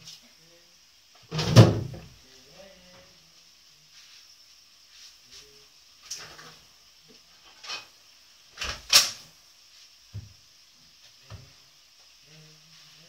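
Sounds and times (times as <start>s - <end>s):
kitchen knocks and clunks: 1.2s - 2.2s, 10.1s - 10.4s.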